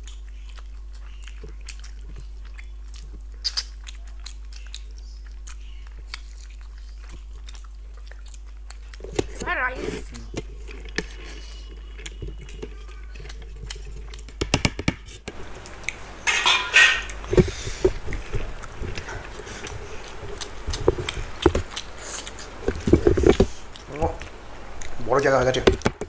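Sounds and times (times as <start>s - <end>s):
steel plates clinking and scraping: 16.2s - 17.1s.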